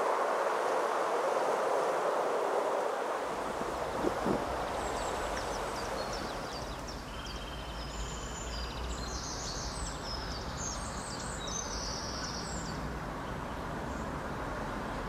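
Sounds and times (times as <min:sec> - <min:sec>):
background hiss: 0:00.0 - 0:15.0
steady low rumble: 0:03.3 - 0:06.8
songbirds singing: 0:03.3 - 0:15.0.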